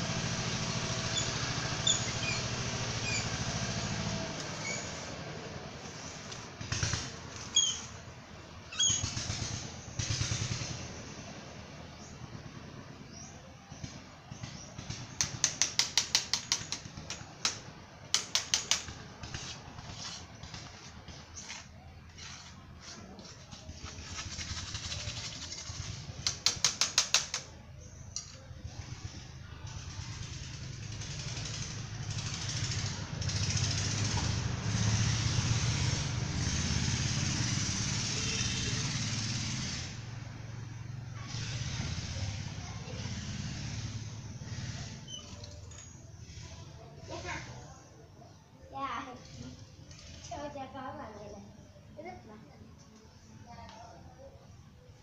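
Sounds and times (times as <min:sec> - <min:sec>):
template scraping wet cement: 0:01.1 - 0:08.1, 0:14.4 - 0:40.0
metal template scraping wet cement: 0:14.9 - 0:28.5.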